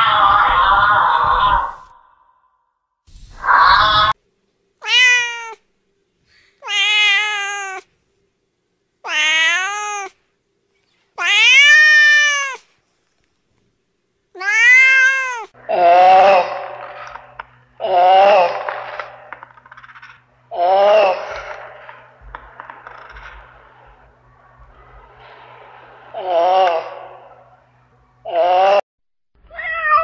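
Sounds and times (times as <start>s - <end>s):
cat meowing: 4.8s - 5.6s, 6.6s - 7.9s, 9.0s - 10.2s, 11.2s - 12.7s, 14.4s - 15.5s, 29.5s - 30.0s.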